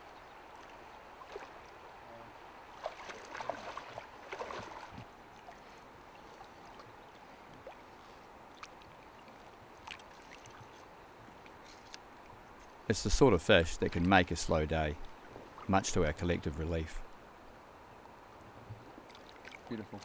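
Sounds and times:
shallow river running: 0.0s - 20.0s
wading splashes in water: 0.4s - 1.9s, 2.6s - 12.5s, 19.0s - 20.0s.

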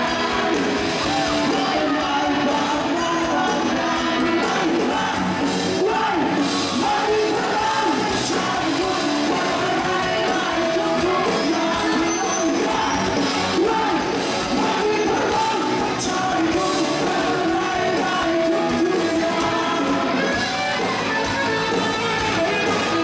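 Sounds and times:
drums: 0.0s - 23.0s
electric guitars: 0.0s - 23.0s
man singing into microphone: 0.0s - 23.0s.

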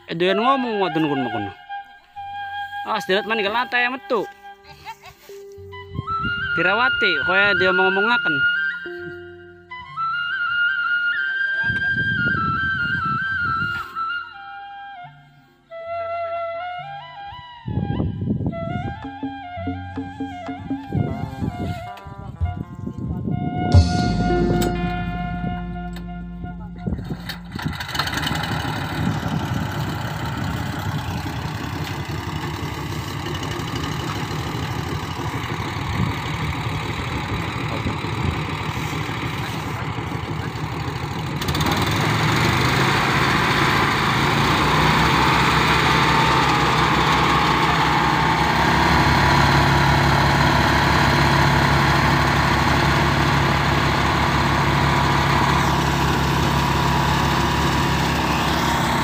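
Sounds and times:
threshing drum running: 23.7s - 38.4s
small engine running: 27.5s - 59.0s.

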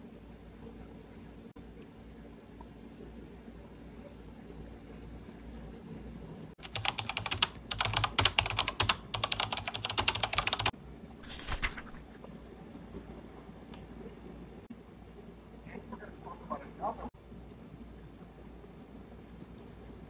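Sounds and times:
laptop keyboard typing: 6.6s - 10.7s
notebook pages rustling: 11.2s - 12.2s.

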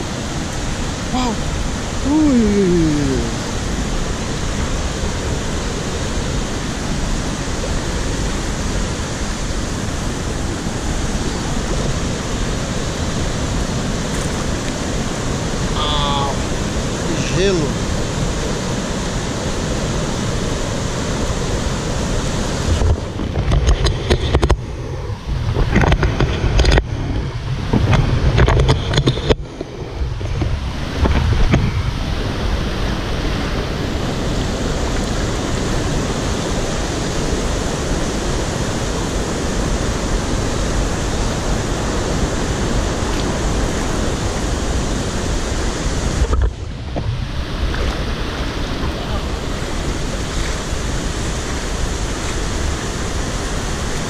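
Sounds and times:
river rapids rushing: 0.0s - 54.0s
water splashing against camera: 22.6s - 32.1s.

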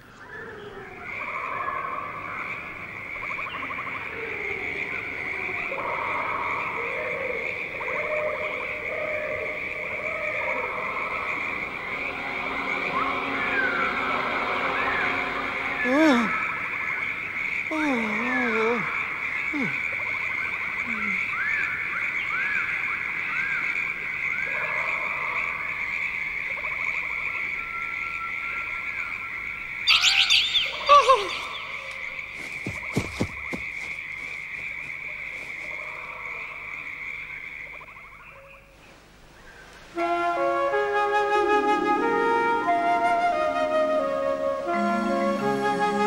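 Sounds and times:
chirping calls: 0.0s - 38.7s
frogs croaking: 0.0s - 40.0s
high trilling chorus: 9.4s - 17.7s, 29.8s - 34.8s
loud sweeping call: 9.4s - 17.7s, 29.8s - 35.8s.

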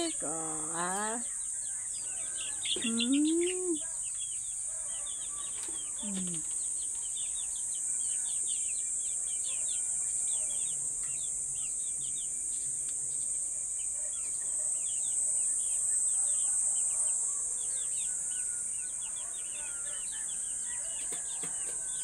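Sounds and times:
chicks peeping: 0.0s - 22.0s.

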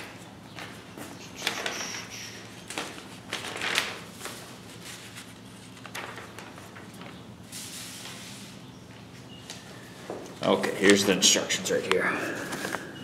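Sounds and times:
paper pages rustling: 1.4s - 8.6s, 10.8s - 11.3s.

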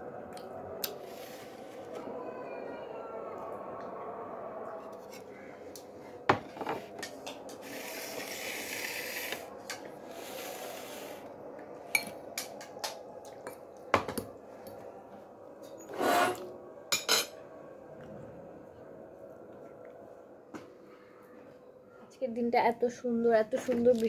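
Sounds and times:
dishes and cutlery clinking: 11.9s - 14.3s, 15.9s - 17.4s
dishes clattering: 16.2s - 17.4s.

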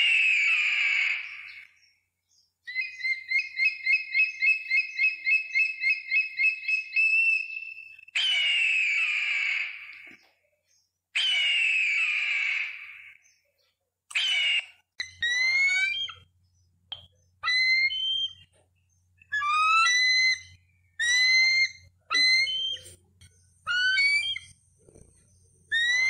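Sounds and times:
eagle screech: 6.7s - 10.1s, 11.2s - 13.2s, 14.1s - 16.3s, 17.4s - 18.5s, 19.3s - 23.0s, 23.6s - 25.0s, 25.7s - 26.0s
eagle yelping: 8.2s - 10.1s, 11.2s - 13.1s, 14.1s - 16.3s, 17.4s - 18.5s, 19.3s - 23.0s, 23.6s - 26.0s.

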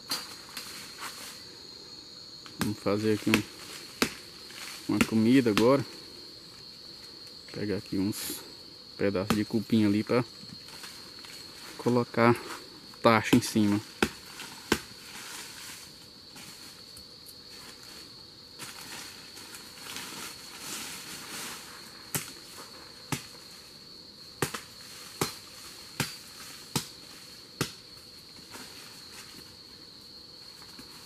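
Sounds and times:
high-pitched insect drone: 0.0s - 31.0s
tool knocking on termite mound: 2.4s - 4.3s, 4.9s - 5.7s, 9.2s - 9.6s, 13.2s - 15.0s, 23.1s - 23.4s, 24.4s - 25.4s, 26.0s - 27.0s, 27.6s - 27.8s.

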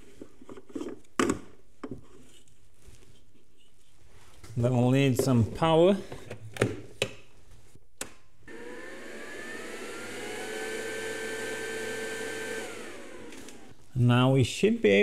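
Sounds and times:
cooling fan whirring: 8.5s - 13.8s.

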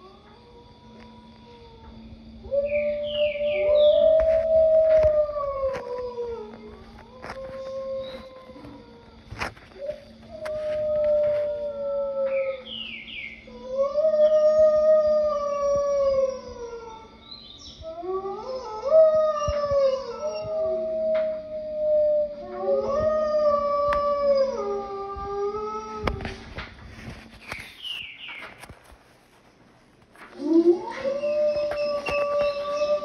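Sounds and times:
wolves howling: 0.0s - 27.1s, 30.2s - 33.0s
steady low hum: 0.0s - 33.0s.

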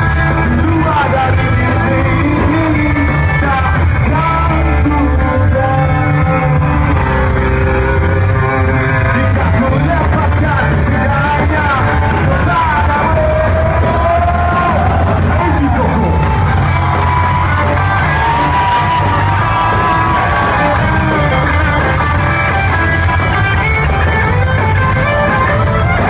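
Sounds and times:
lead singer singing: 0.0s - 7.5s, 8.8s - 15.4s
live rock band playing: 0.0s - 26.0s.

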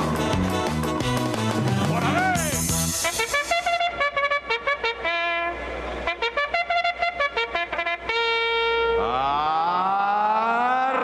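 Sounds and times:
theme music with quick notes: 0.0s - 3.8s.

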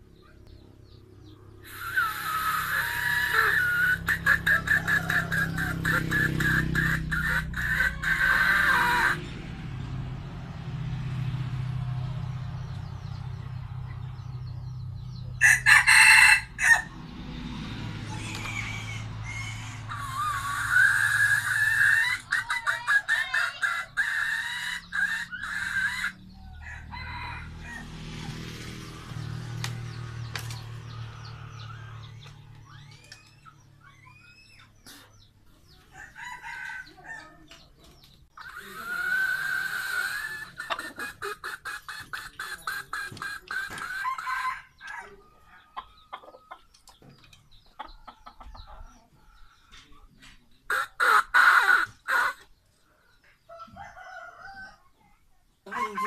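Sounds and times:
rooster clucking: 1.6s - 9.9s, 15.2s - 28.5s, 29.5s - 49.8s, 50.6s - 52.6s, 55.7s - 56.0s
rooster crowing: 1.7s - 9.2s, 15.4s - 17.0s, 18.1s - 22.2s, 23.5s - 28.3s, 35.9s - 37.4s, 43.8s - 46.0s, 53.5s - 54.8s, 55.7s - 56.0s.

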